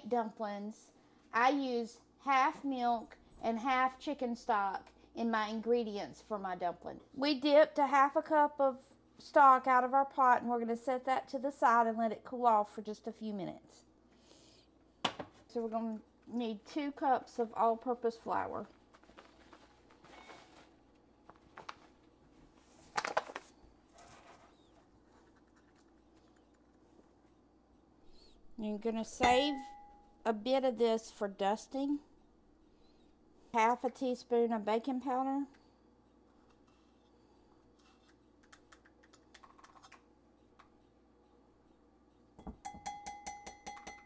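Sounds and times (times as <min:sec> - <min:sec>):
paper bag rustling: 0:18.8 - 0:25.7
knocks with ringing clink: 0:42.4 - 0:44.0.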